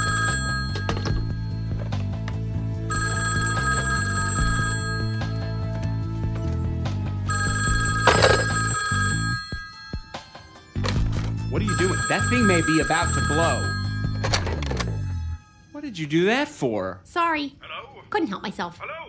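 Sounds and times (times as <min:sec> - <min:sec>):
rotary telephone bell ringing: 0:00.0 - 0:02.0, 0:02.9 - 0:05.7, 0:07.3 - 0:10.8, 0:11.5 - 0:15.5.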